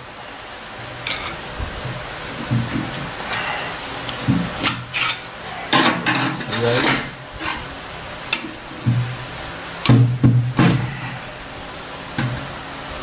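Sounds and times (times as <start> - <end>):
metal scraping and clinking: 4.6 - 5.2, 6.1 - 7.7.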